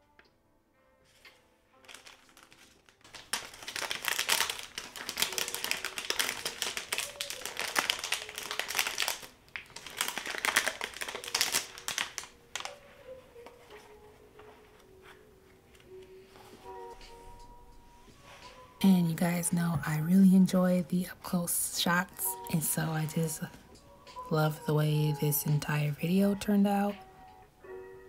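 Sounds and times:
paper and packaging crinkling: 1.0 - 17.0.

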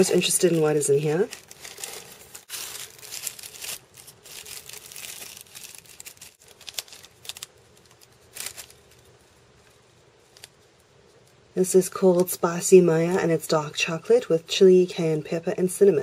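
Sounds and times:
foil pouch crinkling: 0.0 - 10.9
tissue paper crinkling: 0.0 - 11.4.

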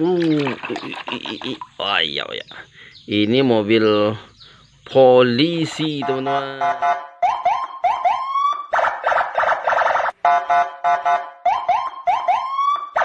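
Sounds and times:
electronic police siren: 6.0 - 13.0.

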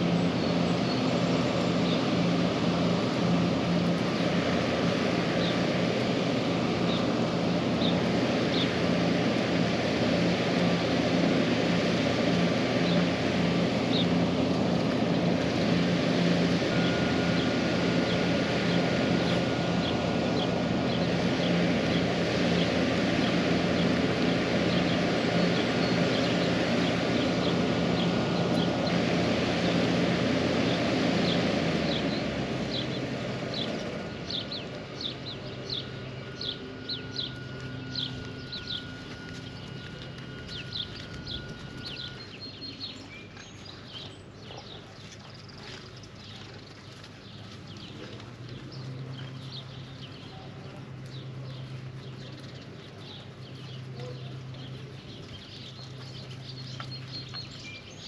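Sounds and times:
broad rushing noise: 0.0 - 43.1
birds chirping: 0.0 - 58.0
machine engine running: 0.0 - 58.0.

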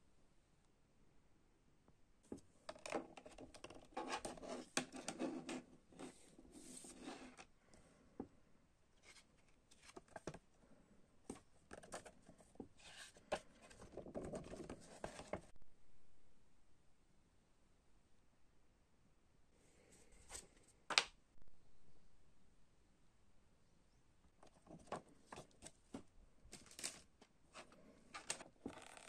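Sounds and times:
paper rustling: 11.7 - 15.5, 24.5 - 29.0.

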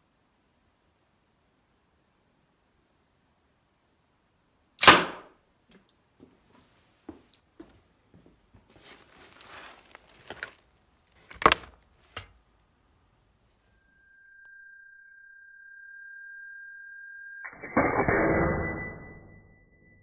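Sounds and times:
coil gun firing crack: 4.8 - 5.4
high-pitched whine: 13.6 - 20.0.

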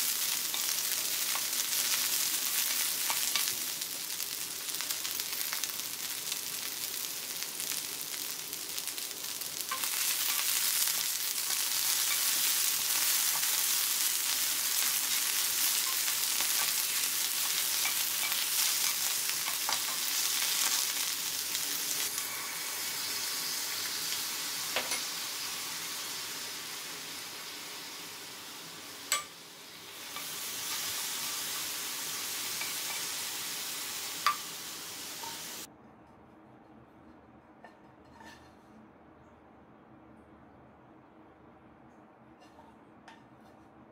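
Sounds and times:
food sizzling in a pan: 0.0 - 35.7
spatula scraping a pan: 37.7 - 38.6.

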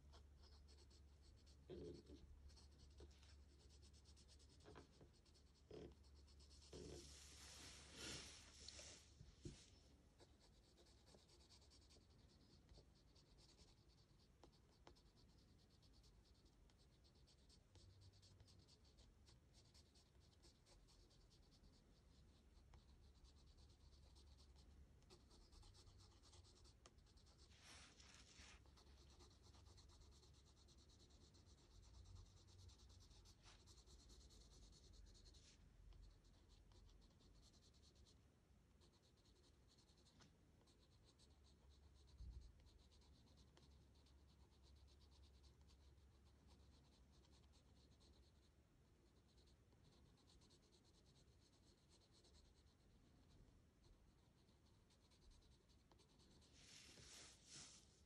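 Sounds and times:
pencil scratching on paper: 0.0 - 38.2, 38.8 - 53.3, 53.9 - 57.9.

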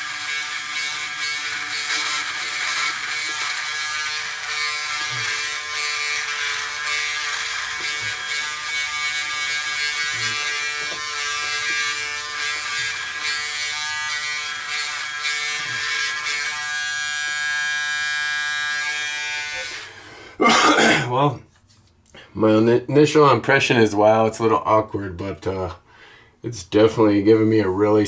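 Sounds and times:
electric shaver buzzing: 0.0 - 19.9.

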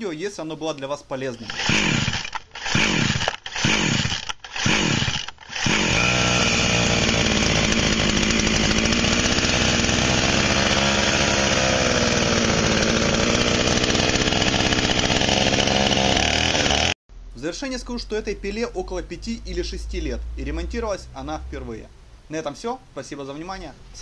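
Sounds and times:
starter cord pulls: 1.3 - 16.9
chainsaw engine running: 1.4 - 17.0.

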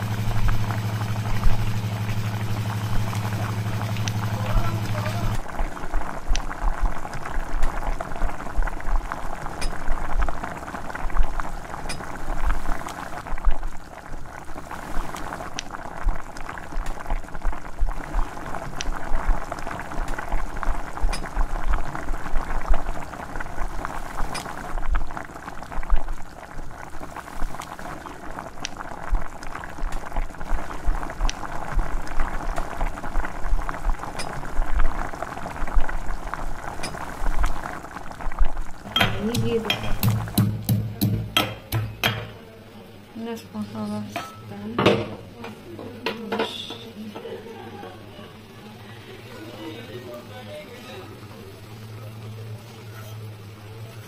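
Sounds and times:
thick sauce bubbling and popping: 0.0 - 42.4.

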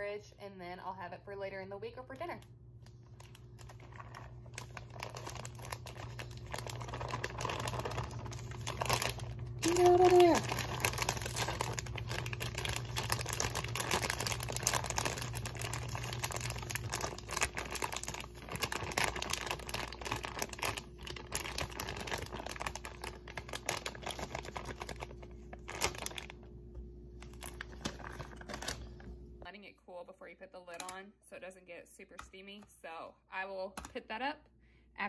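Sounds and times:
plastic bag crinkling: 2.9 - 26.5, 27.2 - 29.2.

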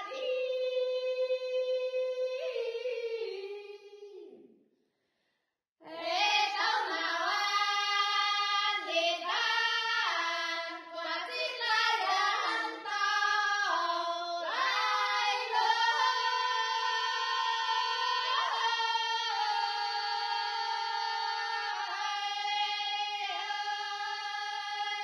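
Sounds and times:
children singing folk song: 5.8 - 25.0.

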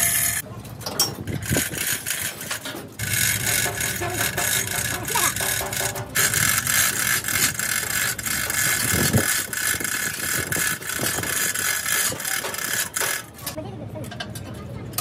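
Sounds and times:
hoist chain rattling: 0.0 - 13.6
ratchet clicks: 0.0 - 13.6.

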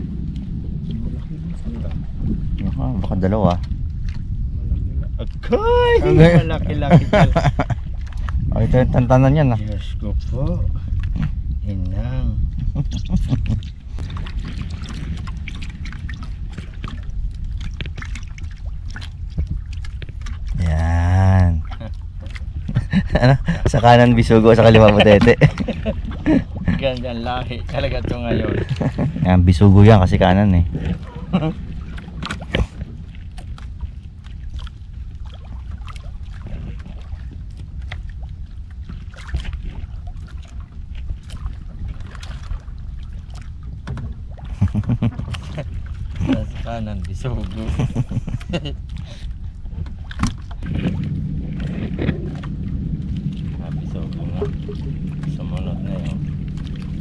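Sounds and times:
low rumble: 0.0 - 57.0
water trickling and dripping: 0.0 - 57.0
small splashes and ticks: 0.2 - 5.5, 7.4 - 8.4, 12.5 - 20.7, 21.6 - 23.8, 30.8 - 57.0.

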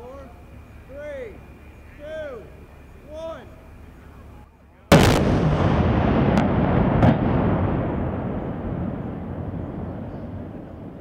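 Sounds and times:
bridge collapsing rumble: 4.9 - 11.0
explosive blast: 4.9 - 11.0
explosive cracks: 4.9 - 11.0.

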